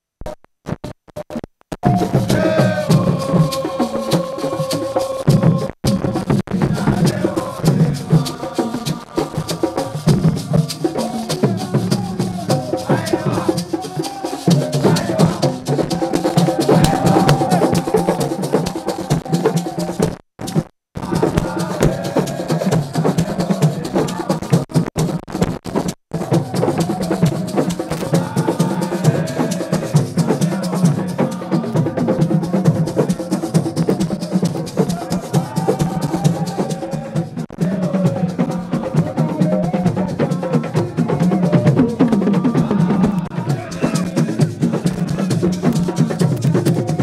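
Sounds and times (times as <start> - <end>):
drums played fast: 1.2 - 47.0
crowd singing and chanting: 1.8 - 5.8, 6.5 - 20.0, 21.0 - 24.7, 26.2 - 47.0.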